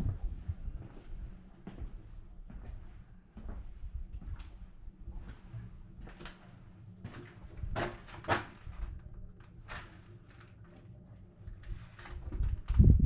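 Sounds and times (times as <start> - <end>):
low rumble: 0.0 - 7.9.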